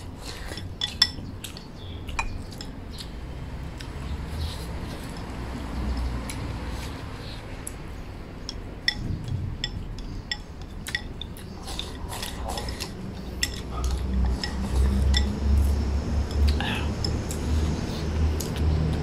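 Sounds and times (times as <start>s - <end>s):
chopsticks clinking on porcelain bowls: 0.1s - 3.1s, 4.8s - 7.0s, 8.4s - 17.5s.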